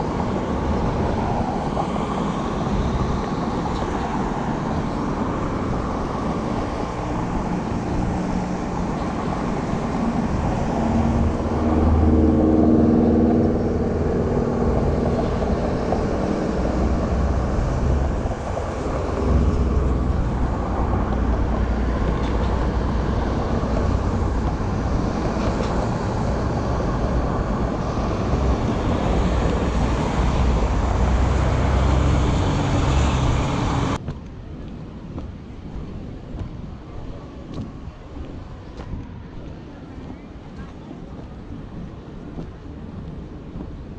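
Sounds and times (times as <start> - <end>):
traffic rumble: 0.0 - 43.9
vehicle engine passing close: 7.1 - 34.0.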